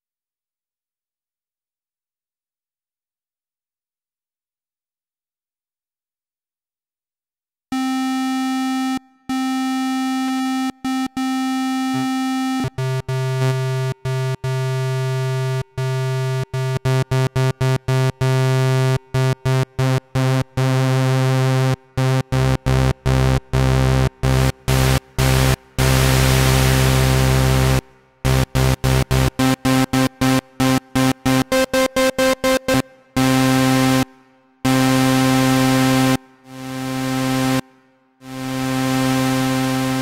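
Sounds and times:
buzzy synthesizer tone: 19.8 - 37.6, 38.2 - 40.0.

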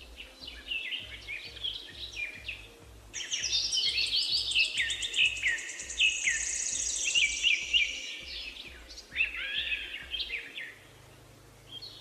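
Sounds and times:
birds chirping: 0.0 - 12.0
high insect trill: 3.2 - 9.9.

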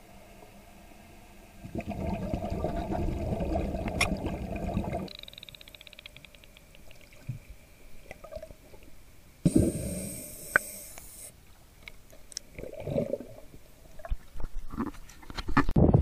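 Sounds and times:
underwater bubbles rushing: 1.6 - 5.1.

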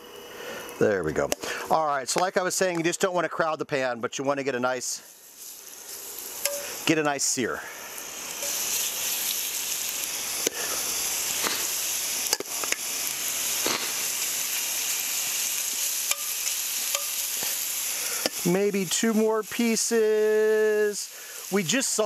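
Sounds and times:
meat sizzling in oil: 5.0 - 22.0
metal tongs clicking: 6.4 - 6.7, 16.1 - 16.3, 16.9 - 17.2.

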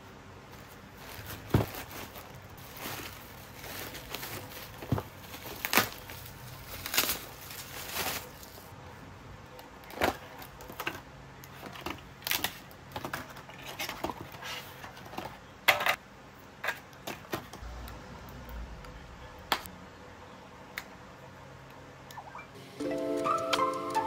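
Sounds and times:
plastic packaging crackling: 0.5 - 8.7.

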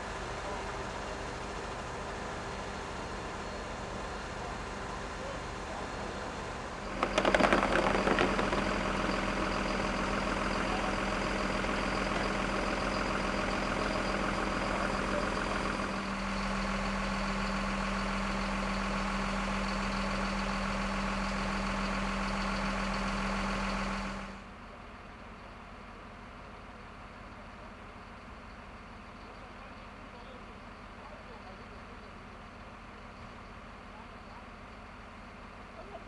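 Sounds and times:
truck engine idling: 0.0 - 36.0
clattering knocks: 7.0 - 8.8.

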